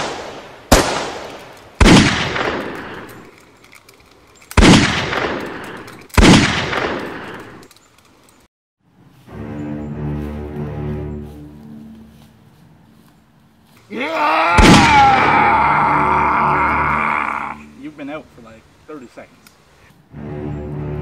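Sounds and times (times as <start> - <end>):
pistol shots echoing: 0.0 - 3.1, 4.6 - 7.6
music: 9.1 - 12.3, 20.1 - 21.0.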